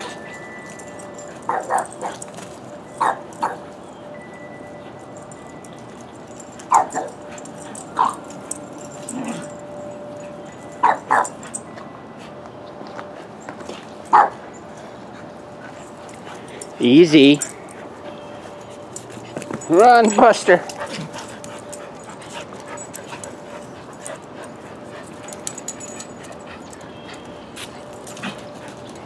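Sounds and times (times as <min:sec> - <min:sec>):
dog barking: 0:03.0 - 0:03.6, 0:10.8 - 0:11.3, 0:14.1 - 0:14.4.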